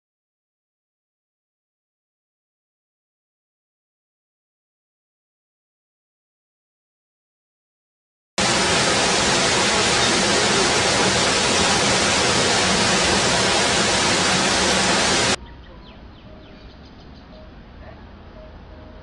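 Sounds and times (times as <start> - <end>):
loud hissing rush: 8.4 - 15.4.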